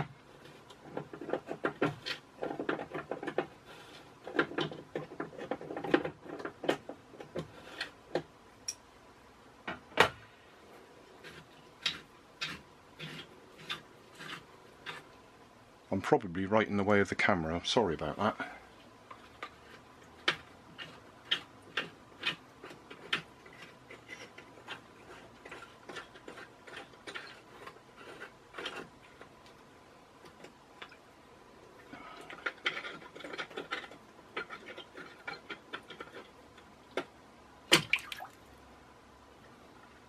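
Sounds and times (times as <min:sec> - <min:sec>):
float ball knocking and splashing: 0:37.7 - 0:38.5
water sloshing and dripping: 0:37.7 - 0:38.6.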